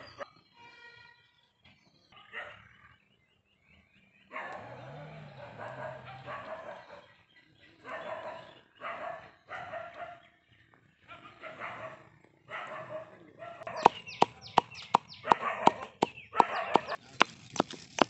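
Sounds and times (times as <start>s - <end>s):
animal calls: 4.2s - 10.3s, 11.0s - 18.0s.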